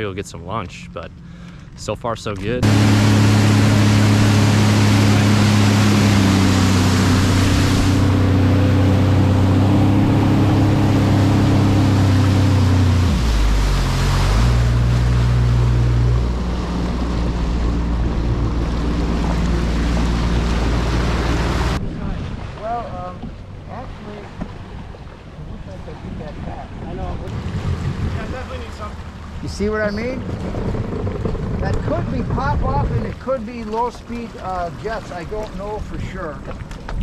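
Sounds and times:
watercraft engine running: 0.0 - 37.0
water rushing: 1.8 - 37.0
wind noise: 26.0 - 29.5, 30.2 - 33.2.

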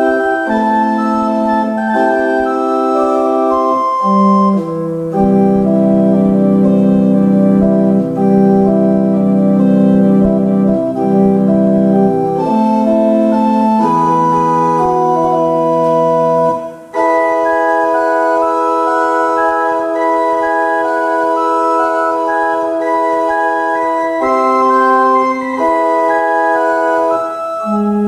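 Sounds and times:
pipe organ playing held chords: 0.0 - 28.0
low bass line: 4.3 - 16.9.

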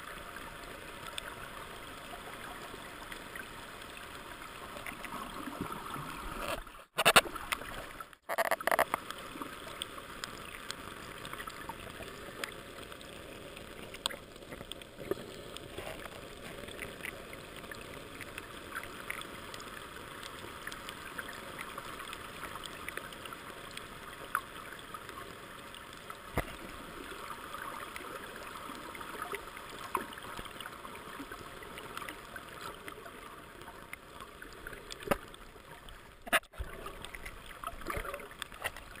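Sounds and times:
small underwater clicks: 0.1 - 39.0
muffled underwater hiss: 8.8 - 39.0.

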